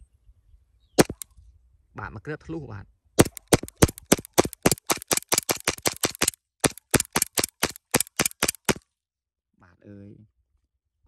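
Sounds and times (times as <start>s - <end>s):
air pistol shots cracking: 1.0s - 1.2s, 3.2s - 8.8s.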